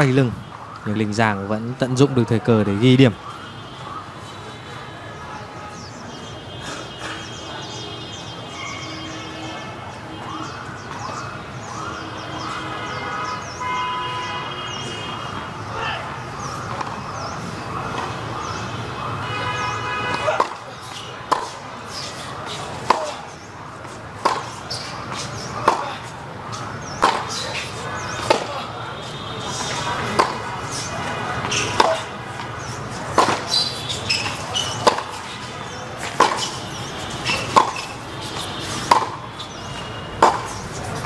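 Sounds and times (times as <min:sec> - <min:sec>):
tennis balls struck by rackets: 0:16.4 - 0:17.1, 0:20.1 - 0:28.8, 0:29.4 - 0:41.0.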